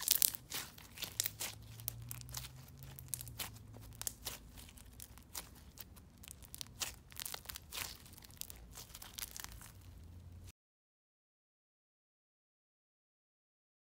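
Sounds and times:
slime crunching and popping: 0:00.0 - 0:10.4.

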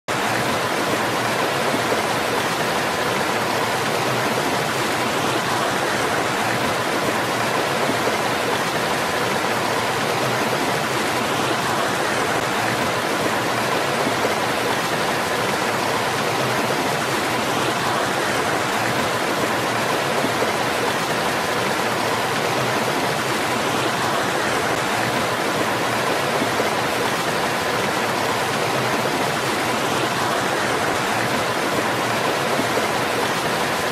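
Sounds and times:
stream spilling over rocks: 0:00.1 - 0:33.9.

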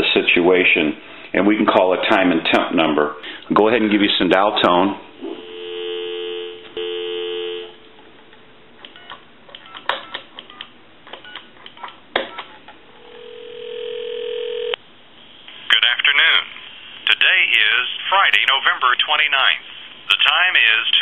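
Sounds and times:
telephone ringback tone: 0:05.4 - 0:07.8, 0:13.0 - 0:14.8
telephone dial tone: 0:05.5 - 0:07.8, 0:12.4 - 0:14.8.

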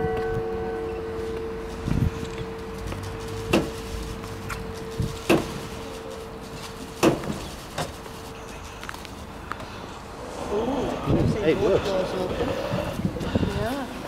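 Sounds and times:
church bell hum: 0:00.0 - 0:07.0.

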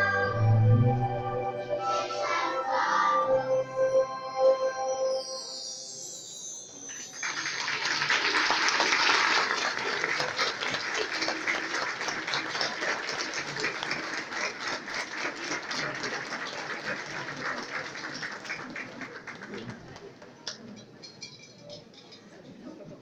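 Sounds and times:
audience applauding: 0:07.0 - 0:20.1.

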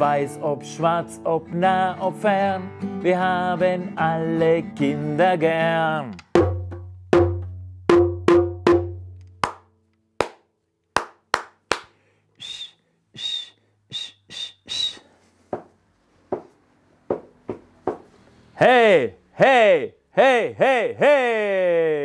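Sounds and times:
guitar body slapped in beat: 0:06.2 - 0:09.6
hand claps: 0:09.4 - 0:12.0
short whistles: 0:12.3 - 0:15.2
foot stamps: 0:15.4 - 0:18.2.

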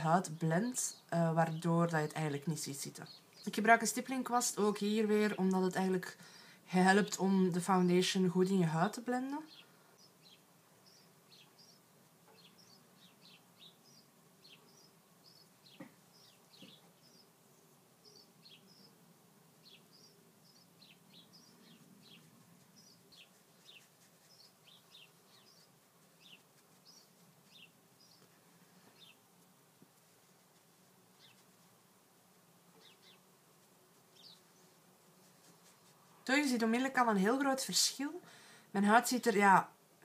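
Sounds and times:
faint tap: 0:15.8 - 0:16.0.

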